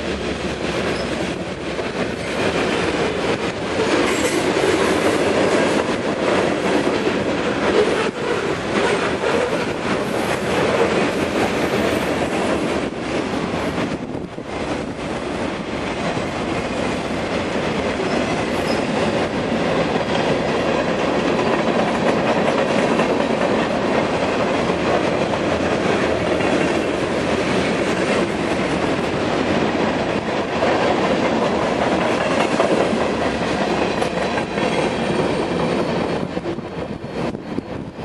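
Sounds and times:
freight train wheels on rails: 0:00.0 - 0:38.0.

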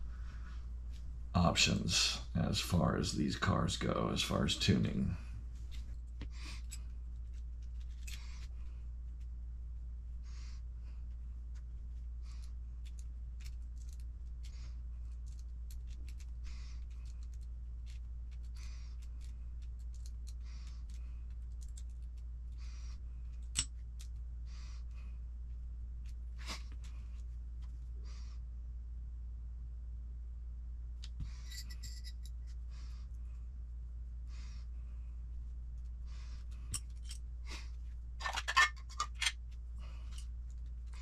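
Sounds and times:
steady low hum: 0:00.0 - 0:41.0
small parts clicking: 0:06.5 - 0:08.5, 0:12.4 - 0:14.5, 0:15.1 - 0:22.2.

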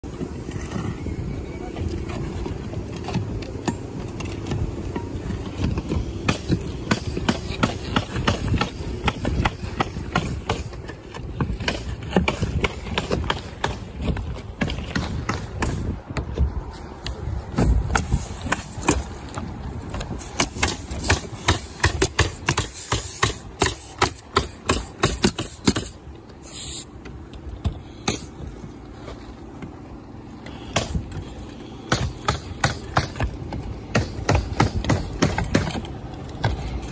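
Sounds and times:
pneumatic nailer clacking: 0:20.1 - 0:26.9
air hiss: 0:25.4 - 0:26.9.

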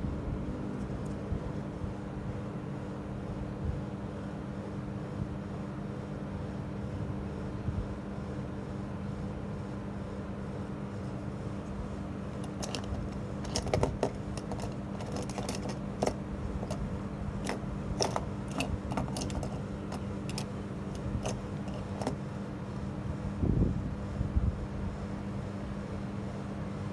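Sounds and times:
steady low hum: 0:00.0 - 0:26.9.

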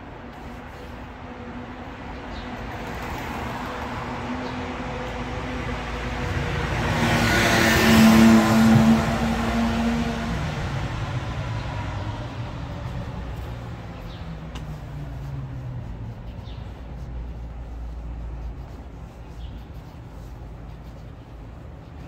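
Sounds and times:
city street traffic rumble: 0:00.0 - 0:22.0
vehicle passing by: 0:02.6 - 0:18.9.

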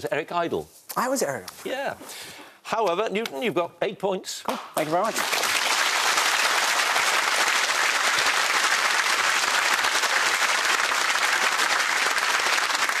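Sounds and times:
audience applauding: 0:04.9 - 0:13.0.

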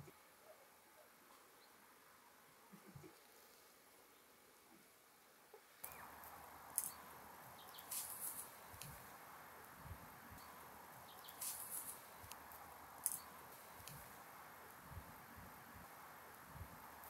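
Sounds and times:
steady low hiss: 0:00.0 - 0:17.0
herb sprigs rustling and crackling: 0:05.8 - 0:15.2.

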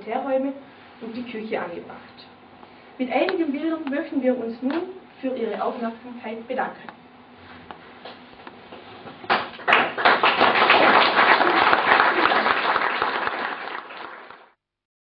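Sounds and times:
audience applauding: 0:09.3 - 0:14.6.

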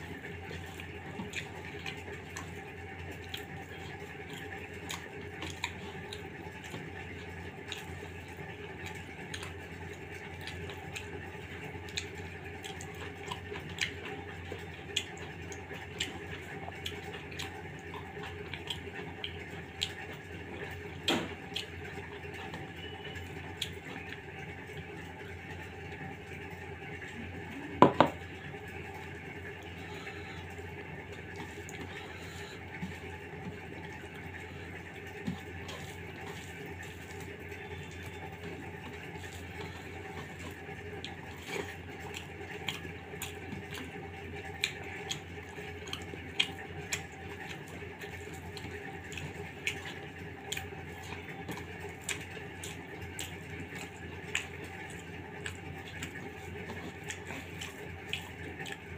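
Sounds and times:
fingers squelching wet food: 0:31.1 - 0:58.9.

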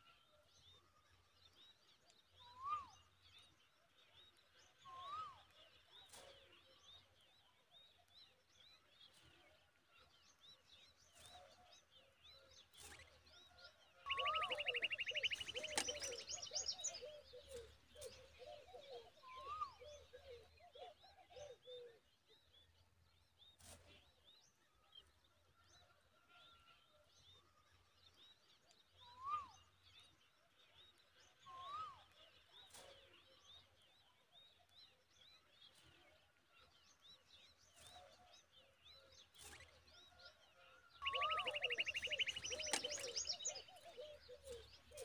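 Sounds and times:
lower falling bird notes: 0:14.1 - 0:16.3, 0:41.1 - 0:43.4
short rising bird notes: 0:14.1 - 0:16.3
nestlings chirping: 0:14.1 - 0:16.6, 0:41.0 - 0:43.8.

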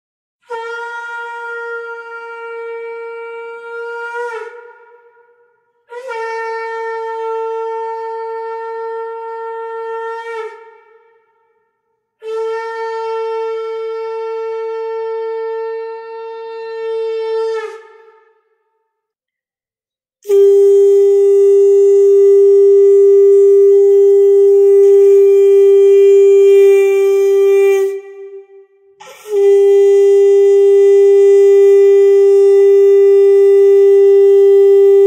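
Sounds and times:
conch shell blasts: 0:20.2 - 0:35.0.

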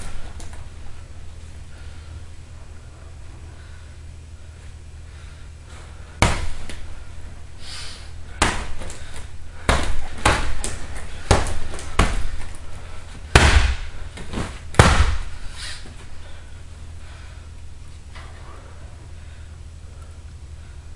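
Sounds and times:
fists hitting punching bag: 0:06.2 - 0:06.9, 0:08.3 - 0:15.4.

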